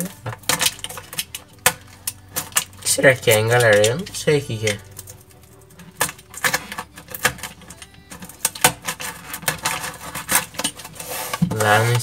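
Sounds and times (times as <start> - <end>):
box cutter cutting cardboard: 5.8 - 12.0.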